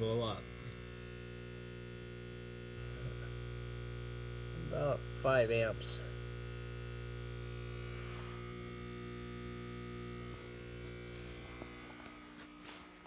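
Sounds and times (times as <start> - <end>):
battery charger humming: 0.0 - 13.0.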